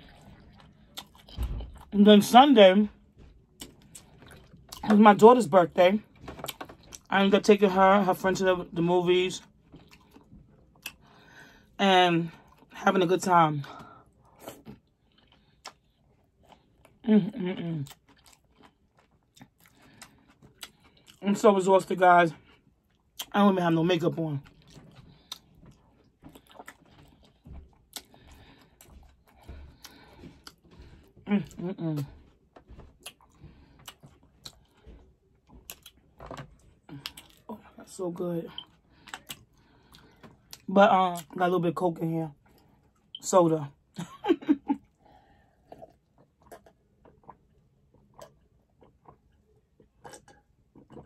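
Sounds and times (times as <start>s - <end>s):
person gulping and swallowing: 0.0s - 2.0s, 3.1s - 5.0s, 14.3s - 21.2s, 24.4s - 37.6s, 44.7s - 51.0s
wet chewing and mouth clicks: 0.0s - 2.0s, 3.1s - 5.0s, 6.2s - 7.1s, 9.4s - 11.3s, 14.1s - 17.0s, 17.8s - 21.2s, 22.4s - 23.4s, 24.4s - 37.5s, 38.5s - 41.5s, 44.8s - 51.0s.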